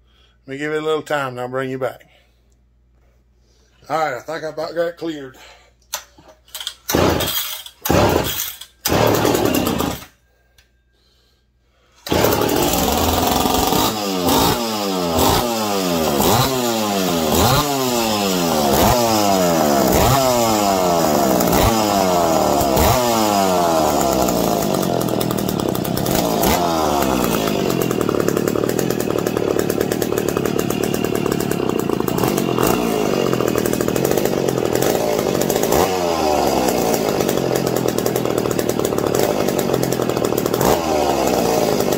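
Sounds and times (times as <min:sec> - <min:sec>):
recoil starter yanks: 0:05.8 - 0:10.1
chainsaw engine revving: 0:06.9 - 0:10.1, 0:12.0 - 0:41.9.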